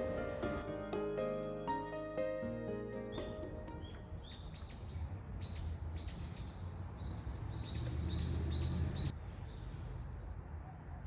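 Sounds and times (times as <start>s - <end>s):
small bird chirping: 3.2s - 9.1s.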